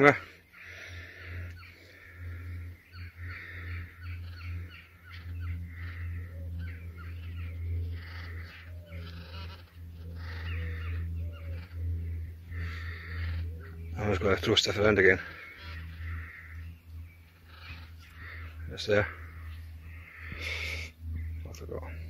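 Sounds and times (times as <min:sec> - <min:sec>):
crows cawing: 0:00.0 - 0:22.0
steady low hum: 0:00.0 - 0:22.0.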